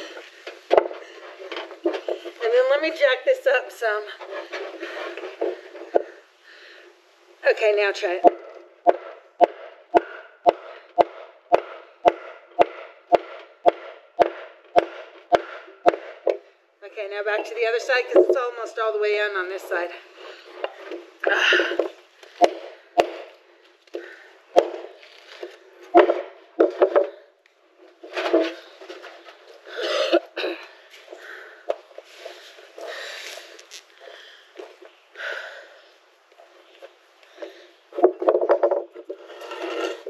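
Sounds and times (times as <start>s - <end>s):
hammer striking wooden board: 8.3s - 16.4s.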